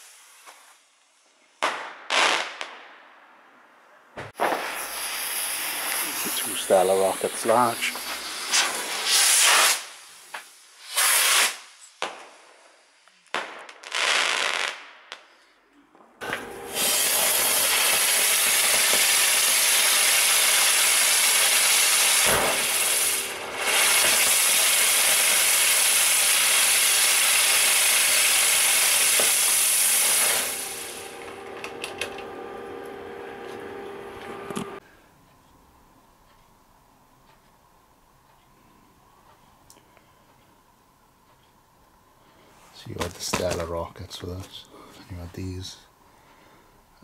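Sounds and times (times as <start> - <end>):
ground firework hissing: 0.0 - 1.4, 4.4 - 15.2, 16.2 - 34.8
firework rockets whooshing: 0.0 - 3.0, 4.3 - 15.4, 16.3 - 31.8
sharp firework crack: 0.0 - 3.4, 4.2 - 15.5, 16.3 - 31.5, 43.0 - 43.7.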